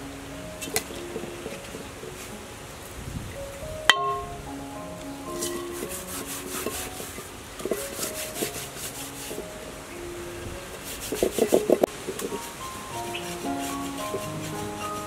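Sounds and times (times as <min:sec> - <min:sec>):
fish scales being scraped: 0:05.4 - 0:09.4, 0:10.8 - 0:12.6.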